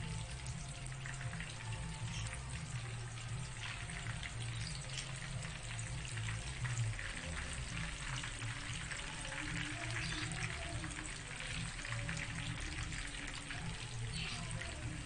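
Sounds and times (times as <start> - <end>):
food deep-frying in hot oil: 0.0 - 15.0.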